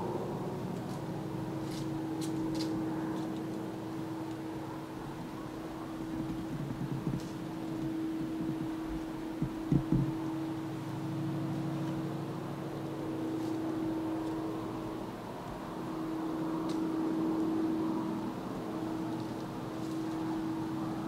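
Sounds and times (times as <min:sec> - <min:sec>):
low mechanical hum: 0:00.0 - 0:21.0
soft knocks: 0:09.4 - 0:10.2.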